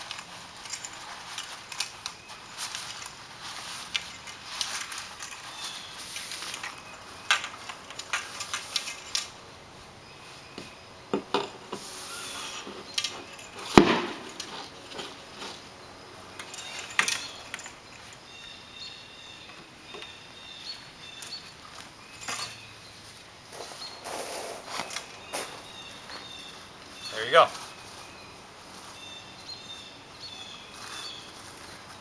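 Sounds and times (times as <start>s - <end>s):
sail cloth rustling: 0.0s - 9.2s
metal mast clinks and knocks: 0.0s - 9.5s, 10.7s - 23.8s, 24.6s - 27.6s.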